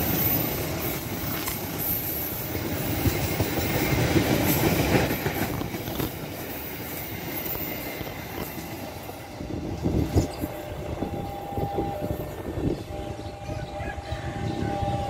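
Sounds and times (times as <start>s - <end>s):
train wheels clattering over rail joints: 0.0s - 11.2s.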